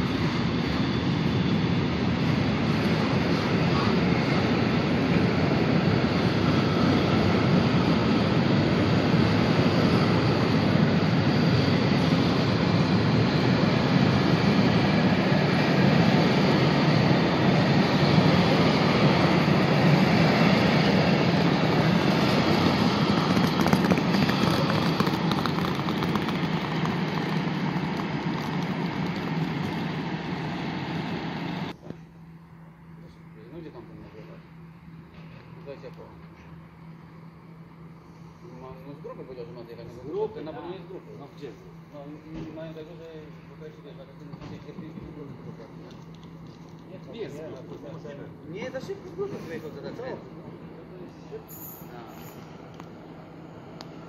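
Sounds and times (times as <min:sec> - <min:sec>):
train wheels rumbling on rails: 0:00.0 - 0:31.8.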